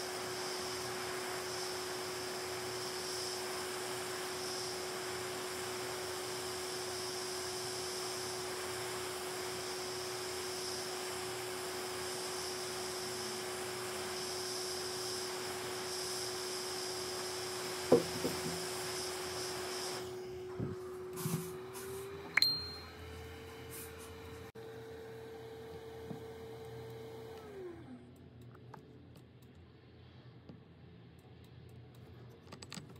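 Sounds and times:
hot air station blowing: 0.0 - 24.6.

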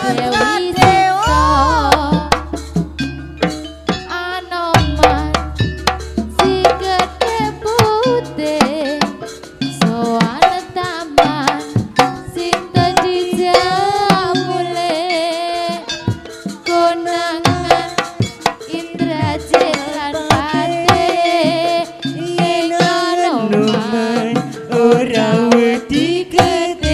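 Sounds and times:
wavering melody: 0.0 - 10.3
hand drums playing: 0.0 - 26.9
steady held tones: 0.0 - 26.9.

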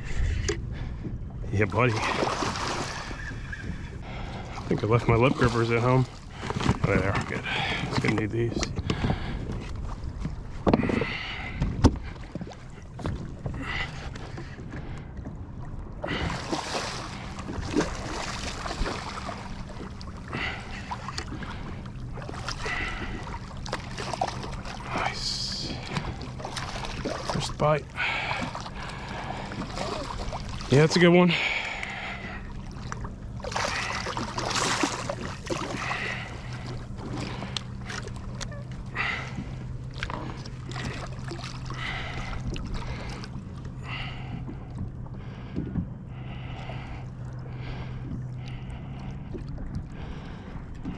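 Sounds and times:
steady low hum: 0.0 - 50.9
fish splashing in water: 16.0 - 44.4.

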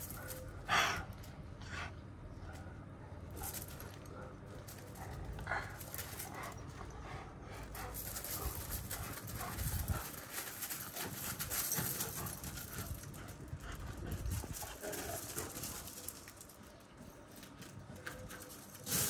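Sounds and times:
dogs scuffling: 7.6 - 19.0
paws crunching on gravel: 7.7 - 16.5.

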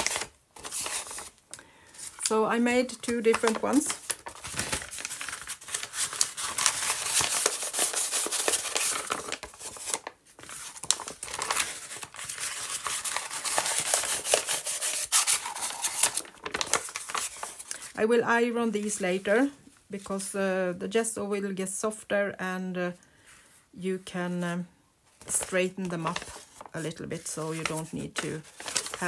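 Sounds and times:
stiff paper rustling and crackling: 0.0 - 18.0, 25.2 - 29.0.

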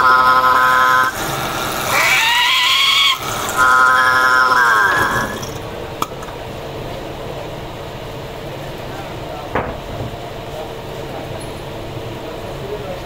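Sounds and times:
lathe spindle whine: 0.0 - 5.8.

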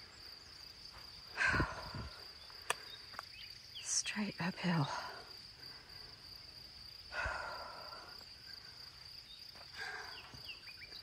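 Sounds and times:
high insect drone: 0.0 - 11.0
person breathing hard: 1.3 - 3.1, 7.1 - 8.9, 9.6 - 10.5.

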